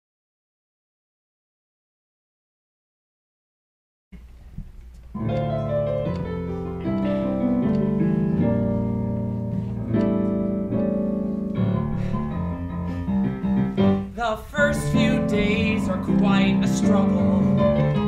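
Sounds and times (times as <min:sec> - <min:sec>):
piano playing held chords: 0:05.1 - 0:18.0.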